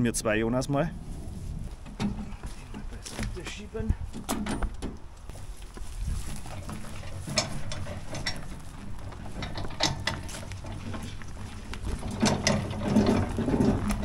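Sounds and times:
metallic clanks and clicks: 0:06.5 - 0:14.0.

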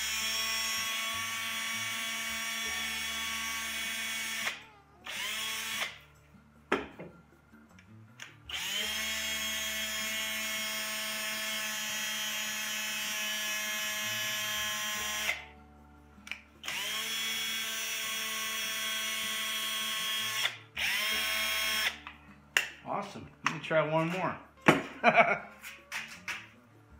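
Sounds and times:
cordless drill whining: 0:00.0 - 0:06.0, 0:08.5 - 0:15.5, 0:16.6 - 0:22.0
drill clicks: 0:16.3 - 0:22.0.

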